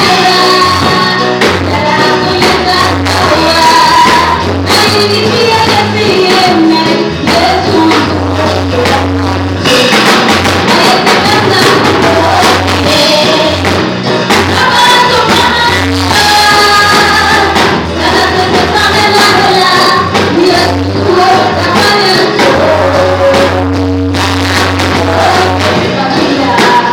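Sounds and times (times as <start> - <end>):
backing singers: 0.0 - 26.9
drum kit: 0.0 - 26.9
woman singing into a microphone: 0.0 - 26.9
pulsing bass beat: 7.2 - 26.9.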